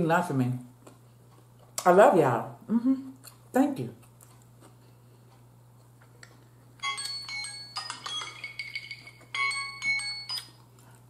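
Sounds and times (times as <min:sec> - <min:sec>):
bell-like chiming melody: 0:06.8 - 0:10.6.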